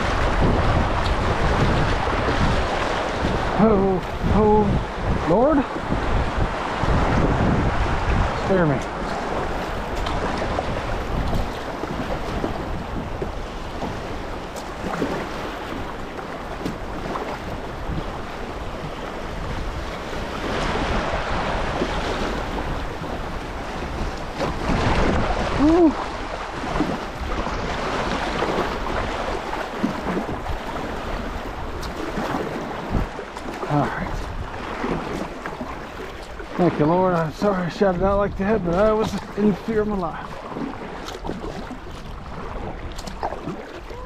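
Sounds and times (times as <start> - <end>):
paddle strokes splashing: 0.0 - 44.0
river water rushing: 0.0 - 44.0
wind buffeting microphone: 0.0 - 44.0.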